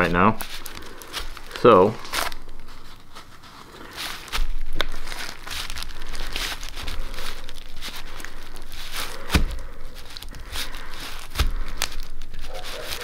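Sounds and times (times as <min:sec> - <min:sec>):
compound stirred in plastic container: 0:00.0 - 0:13.0
plastic crinkling: 0:00.0 - 0:13.0.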